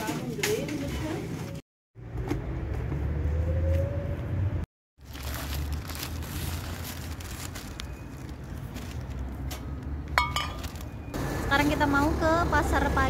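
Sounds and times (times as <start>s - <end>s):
groceries rustling and knocking: 5.0s - 11.1s.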